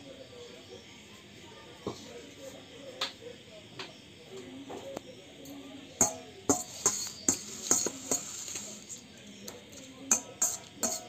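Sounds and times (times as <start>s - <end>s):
metal spoon clinking on pot: 6.0s - 8.3s, 9.5s - 11.0s.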